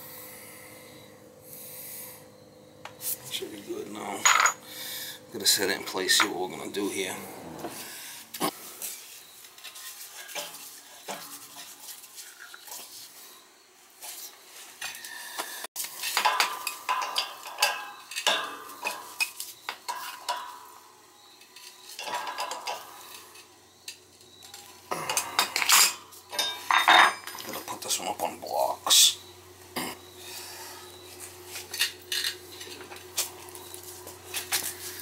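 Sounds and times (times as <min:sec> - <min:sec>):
metal tools and pipe clinking: 0:04.0 - 0:04.6, 0:08.8 - 0:13.1, 0:14.0 - 0:29.1, 0:31.5 - 0:35.0.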